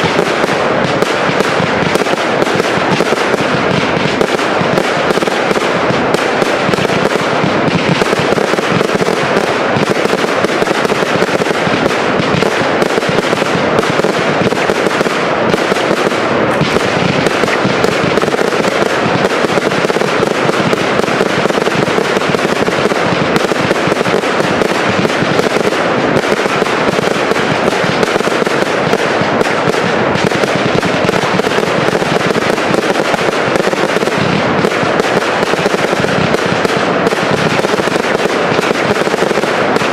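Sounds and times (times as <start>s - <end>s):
fireworks crackling barrage: 0.0s - 39.9s.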